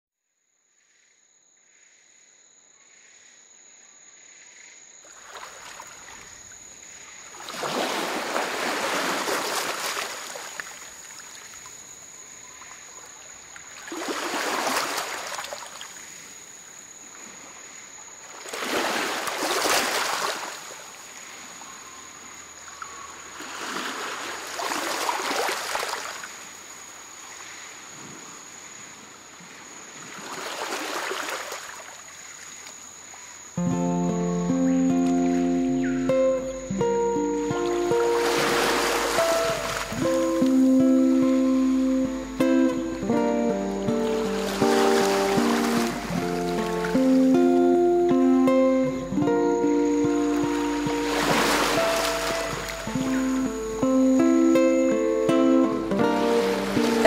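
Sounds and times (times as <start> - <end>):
sea water splashing along hull: 5.1 - 11.8, 12.4 - 16.2, 17.4 - 22.0, 22.7 - 26.6, 29.4 - 32.7, 37.7 - 40.7, 44.0 - 47.3, 50.5 - 53.4.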